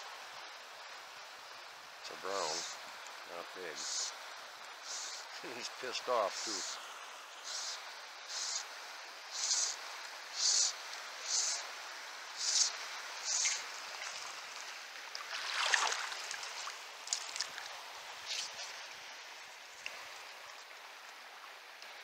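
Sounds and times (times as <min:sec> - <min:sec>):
flowing river water: 0:00.0 - 0:22.0
short hissing bursts: 0:02.3 - 0:02.8, 0:03.6 - 0:04.2, 0:04.8 - 0:06.8, 0:07.4 - 0:13.8
fish splashing at surface: 0:15.3 - 0:17.6.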